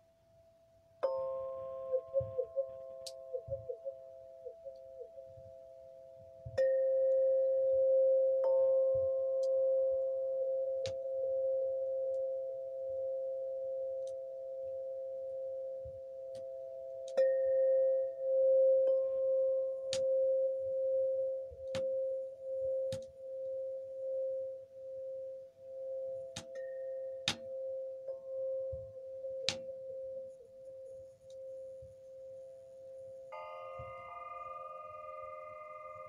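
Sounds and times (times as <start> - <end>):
high pings: 1.0 - 5.4, 33.3 - 36.0
singing bowl ringing tone: 1.0 - 36.0.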